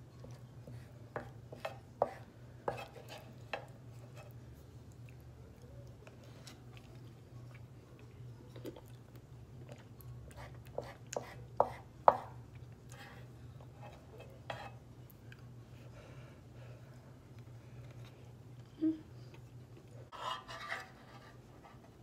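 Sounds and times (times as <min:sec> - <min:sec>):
spoon scraping a pan: 0:01.5 - 0:04.4, 0:13.0 - 0:14.8, 0:20.1 - 0:21.8.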